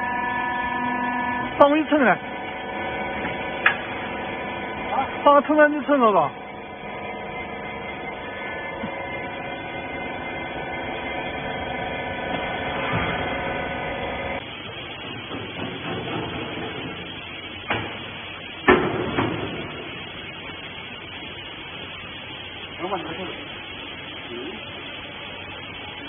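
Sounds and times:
baler motor and pump humming: 0.0s - 26.0s
machine clatter: 14.4s - 20.1s.

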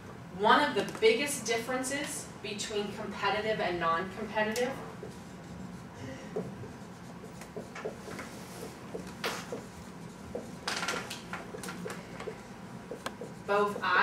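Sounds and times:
marker writing on whiteboard: 4.6s - 14.0s.

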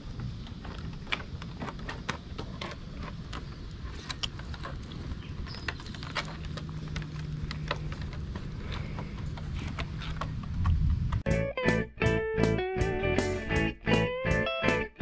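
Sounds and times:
claws clicking and scuffling on boards: 0.0s - 11.2s.

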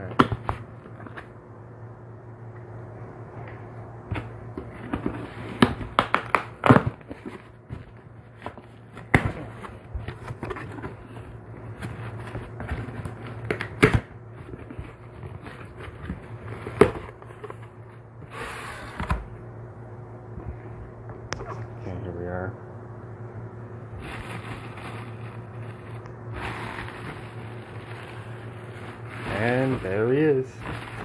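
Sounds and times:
steady low hum: 0.0s - 31.0s
rustling: 24.0s - 31.0s.

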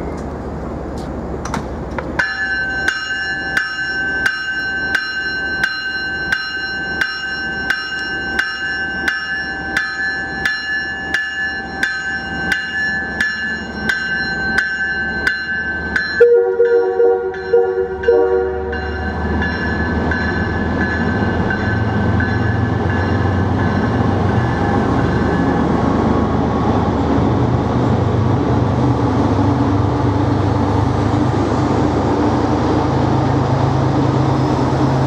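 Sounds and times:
train bell ringing: 2.2s - 25.8s
train horn: 16.2s - 18.9s.

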